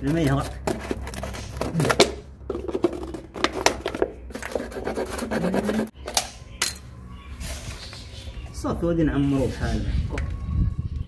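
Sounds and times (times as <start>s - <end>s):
plastic bottle being cut: 3.4s - 5.9s.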